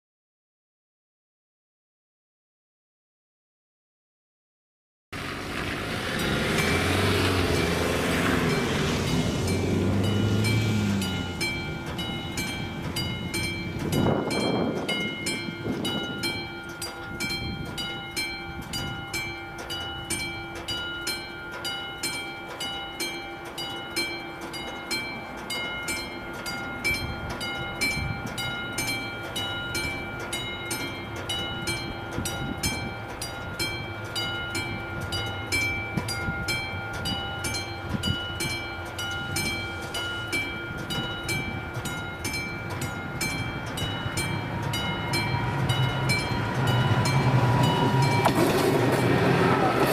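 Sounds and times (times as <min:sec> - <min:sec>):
level crossing bell ringing: 0:08.4 - 0:49.9.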